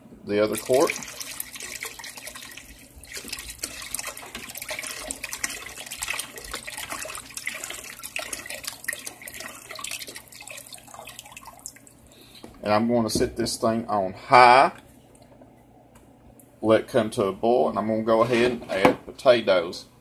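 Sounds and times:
broth pouring and splashing: 0.5 - 12.1.

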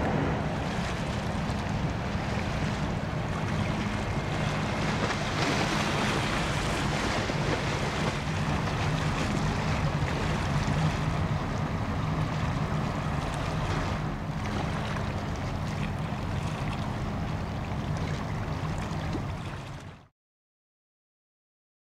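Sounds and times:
wind on microphone: 0.0 - 11.8
ship engine drone: 0.0 - 20.0
water wash: 0.0 - 20.1.

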